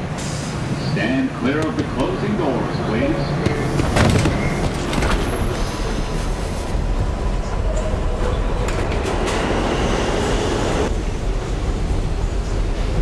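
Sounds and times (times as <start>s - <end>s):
subway train rumbling and rattling: 0.0s - 13.0s.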